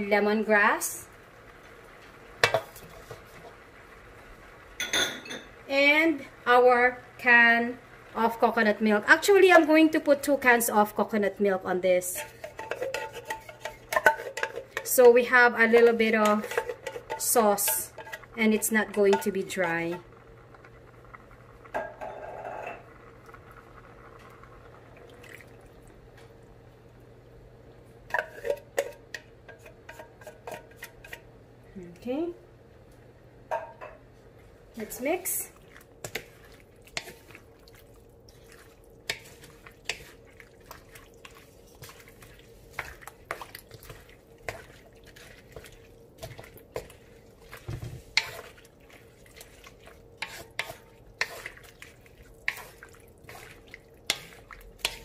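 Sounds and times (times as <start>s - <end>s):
low steady hum: 0.0s - 55.0s
spatula scraping wok: 12.0s - 20.2s, 21.8s - 22.8s, 28.1s - 31.3s, 34.8s - 55.0s.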